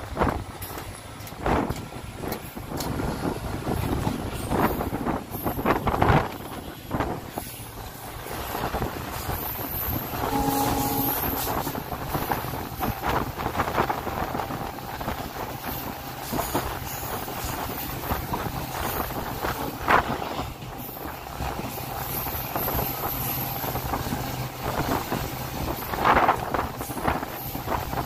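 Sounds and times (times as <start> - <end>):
train wheels rattling on track: 0.0 - 28.0
wind noise: 0.0 - 28.0
brief pitched tone: 10.2 - 11.7.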